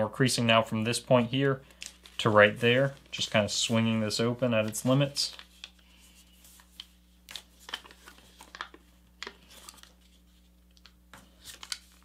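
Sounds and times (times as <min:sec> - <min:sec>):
paper crinkling and rustling: 0:01.7 - 0:12.0.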